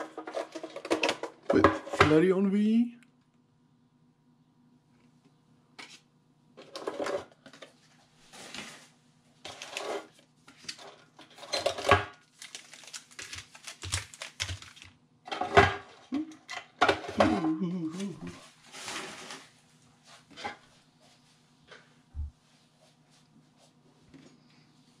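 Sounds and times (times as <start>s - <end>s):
foil packs rustling and crinkling: 8.2s - 15.0s, 18.5s - 19.6s.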